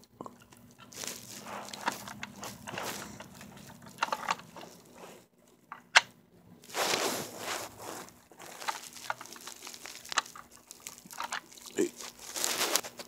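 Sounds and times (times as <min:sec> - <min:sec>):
scraping rustle on carpet: 0:01.0 - 0:03.8, 0:04.6 - 0:05.2, 0:06.6 - 0:10.0, 0:12.0 - 0:13.0.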